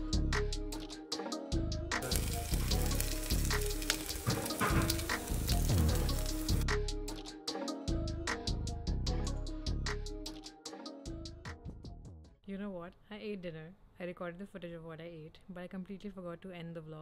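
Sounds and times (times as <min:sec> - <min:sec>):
background music: 0:00.0 - 0:12.4
pancakes sizzling in oil: 0:02.0 - 0:06.6.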